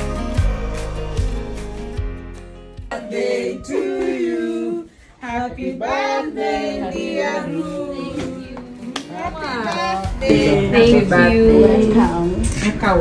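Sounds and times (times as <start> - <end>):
woman singing unaccompanied: 3.1 - 12.5.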